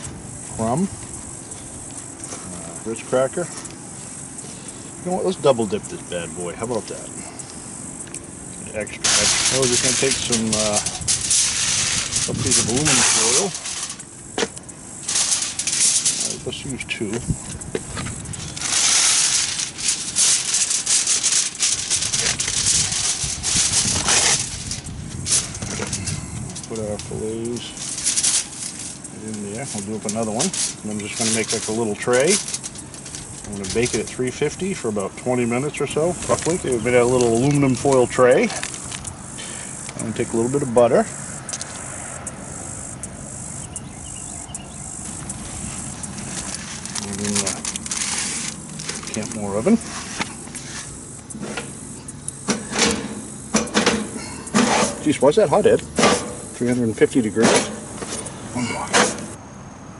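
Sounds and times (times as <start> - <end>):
insect chorus: 0.0 - 59.9
aluminum foil crinkling: 8.8 - 39.2, 45.1 - 51.7.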